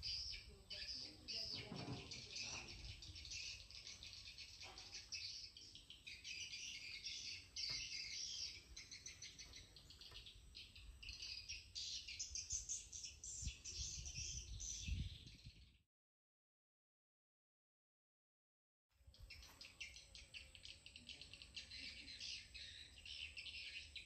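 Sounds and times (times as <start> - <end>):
birds chirping: 0.0 - 15.8, 19.1 - 24.0.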